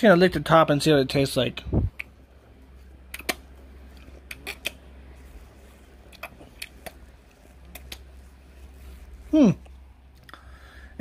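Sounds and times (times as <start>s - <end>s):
steady low hum: 0.0s - 11.0s
mouth clicks from licking: 3.1s - 3.4s, 4.2s - 4.8s, 7.7s - 8.1s.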